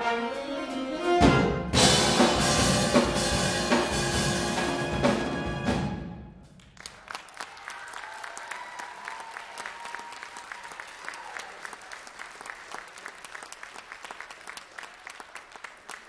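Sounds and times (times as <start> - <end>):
audience applauding: 6.6 - 16.0
long held cheer: 6.8 - 13.0.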